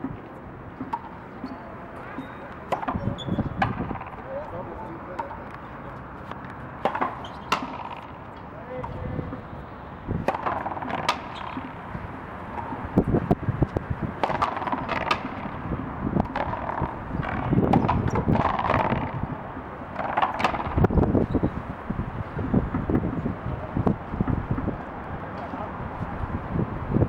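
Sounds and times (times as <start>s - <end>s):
ball cracking off rackets and wall: 2.2s - 5.6s, 6.3s - 8.2s, 10.1s - 15.6s, 19.9s - 20.9s.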